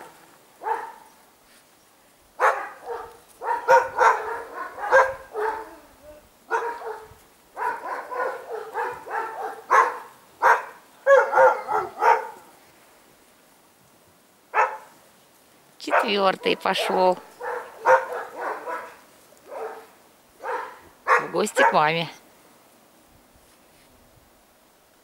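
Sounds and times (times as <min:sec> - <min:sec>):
dogs barking and yelping: 0:00.0 - 0:01.2, 0:02.4 - 0:12.5, 0:14.5 - 0:14.9, 0:15.9 - 0:21.9.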